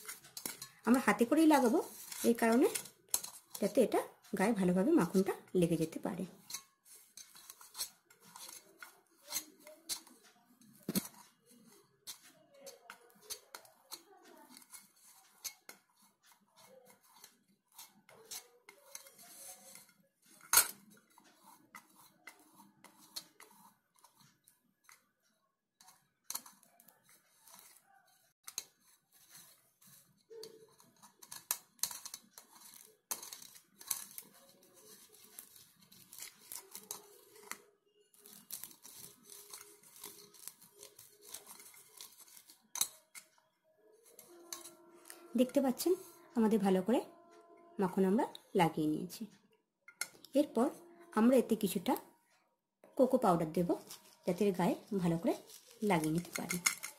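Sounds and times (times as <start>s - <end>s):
fingers rubbing metal bowl: 0.0s - 10.2s, 10.8s - 24.4s, 25.8s - 37.6s, 38.2s - 43.2s, 44.0s - 48.4s.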